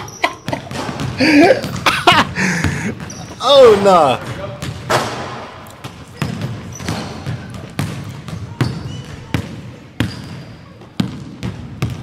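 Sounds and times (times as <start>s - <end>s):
shoes squeaking on floor: 0.0s - 4.4s, 5.8s - 11.0s
basketball bouncing on hardwood: 0.4s - 3.2s, 4.2s - 5.2s, 5.8s - 12.0s.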